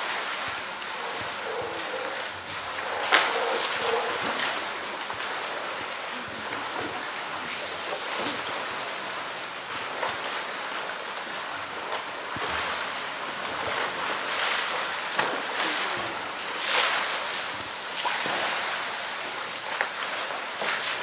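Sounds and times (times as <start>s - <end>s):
steady high hiss: 0.0s - 21.0s
water splashing and sloshing: 0.0s - 21.0s.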